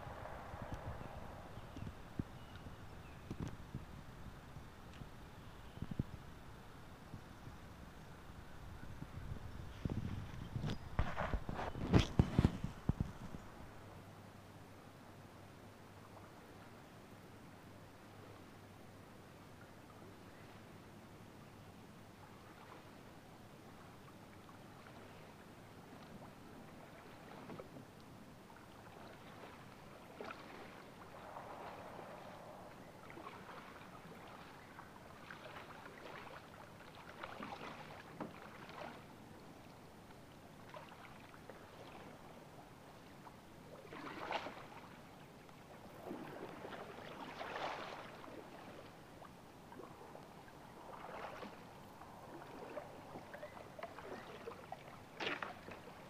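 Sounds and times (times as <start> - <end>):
paddle strokes splashing water: 22.2 - 23.1, 23.8 - 56.0.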